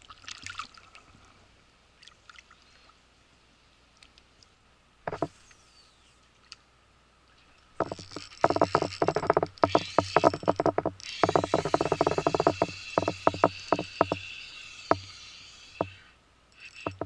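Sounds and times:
spinning reel clicking: 7.9 - 17.0.

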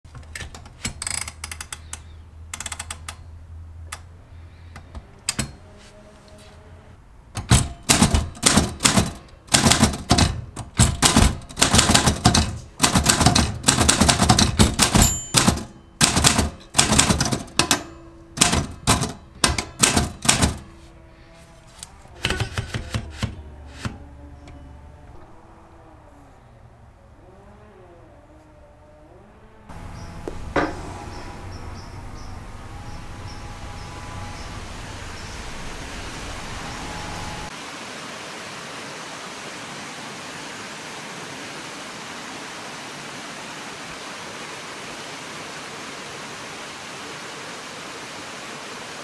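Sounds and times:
typewriter keystrokes: 7.4 - 20.7, 22.2 - 24.0.

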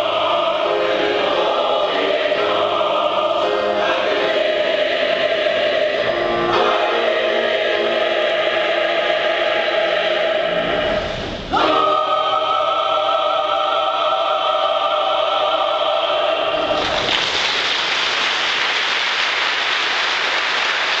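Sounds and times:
choir singing chord: 0.0 - 16.8.

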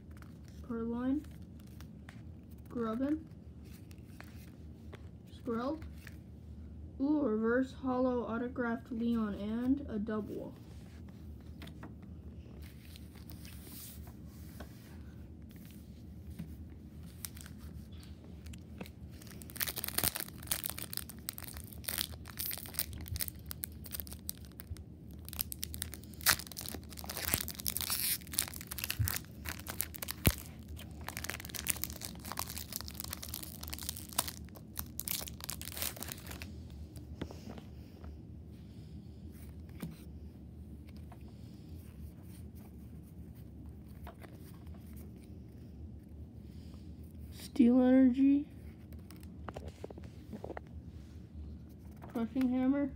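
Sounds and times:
foil wrapper tearing and crinkling: 19.2 - 36.5.

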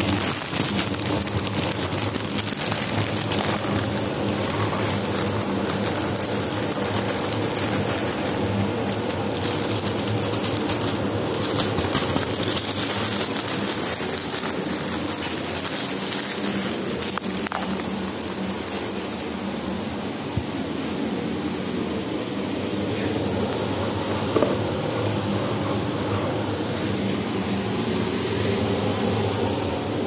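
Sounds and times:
plastic bag crinkling: 0.0 - 19.4
steady low hum: 0.0 - 30.0.

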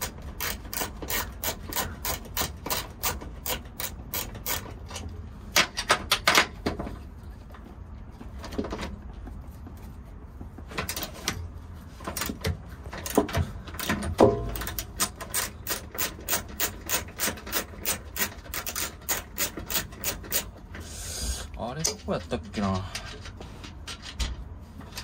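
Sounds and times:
ratchet wrench clicking: 0.0 - 5.0, 14.5 - 20.6.

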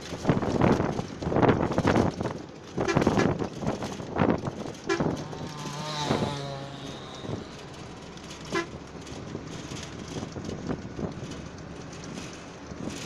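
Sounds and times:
bus engine and road noise: 0.0 - 13.0
vehicle horn toot: 4.9 - 5.2, 8.5 - 8.8.

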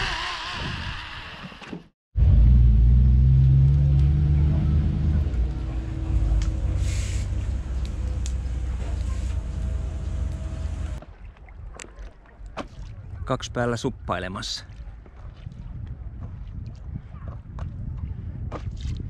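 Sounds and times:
engine running with low drone: 2.2 - 11.0.

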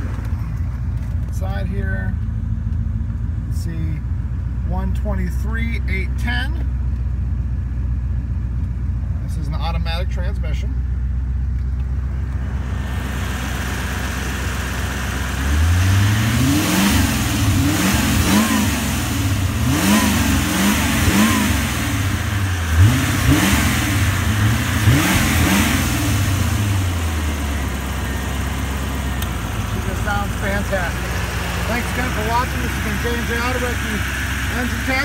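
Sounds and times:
car engine idling: 0.0 - 35.0
engine revving blips: 12.3 - 35.0.

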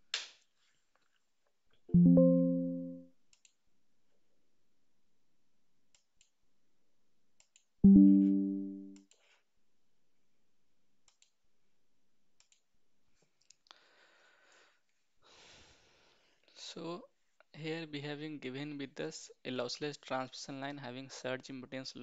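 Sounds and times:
low computer chime: 2.0 - 3.0, 7.8 - 9.0
faint mouse clicks: 11.1 - 11.4, 12.4 - 12.6.

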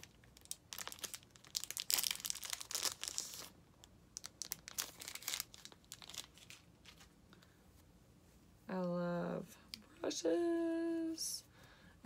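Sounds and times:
plastic sleeve crinkling: 0.0 - 7.2.

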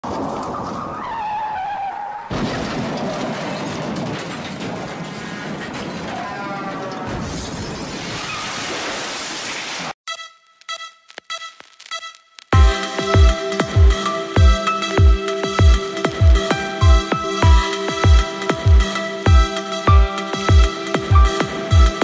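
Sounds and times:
electronic music with steady beat: 10.1 - 22.0.

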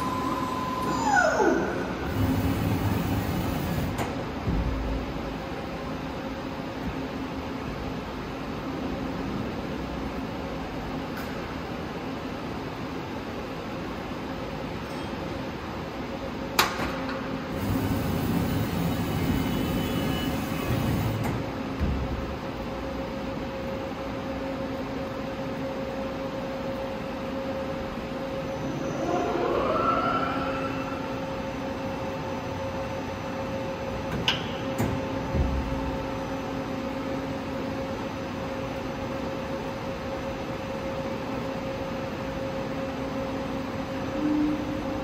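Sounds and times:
machine whine: 0.0 - 4.1, 17.5 - 21.5, 25.3 - 38.7
machine hum: 0.0 - 6.6, 17.5 - 39.0.

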